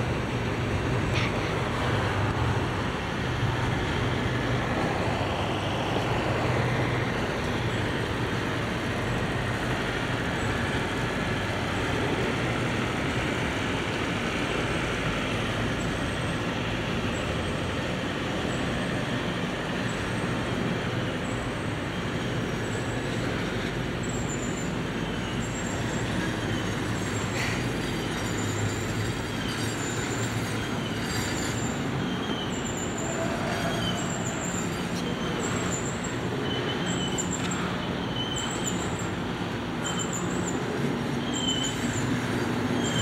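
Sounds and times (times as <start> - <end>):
train wheels rumbling on rail: 0.0 - 43.0
wheel squeals: 18.4 - 43.0.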